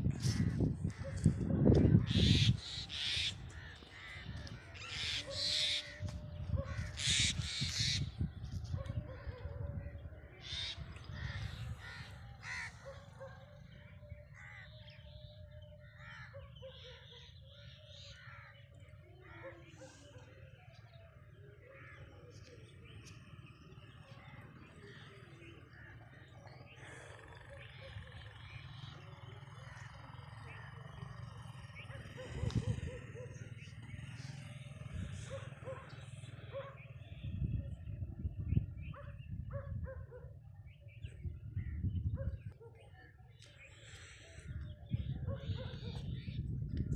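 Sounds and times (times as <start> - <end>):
crows cawing: 0.2 - 8.1, 10.4 - 13.7, 14.3 - 15.2, 15.9 - 16.9.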